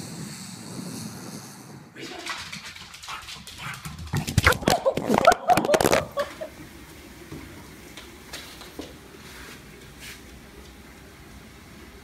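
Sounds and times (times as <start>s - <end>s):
person laughing: 4.5s - 6.6s.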